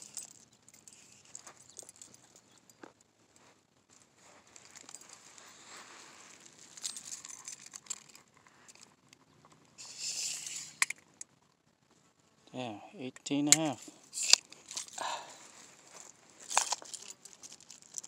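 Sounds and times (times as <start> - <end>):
dry grass and sand rustling: 0.0 - 9.0, 13.4 - 18.0.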